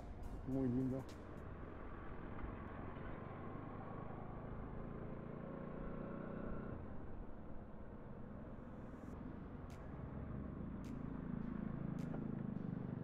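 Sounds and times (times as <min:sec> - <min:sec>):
motorcycle engine running: 0:09.2 - 0:13.0.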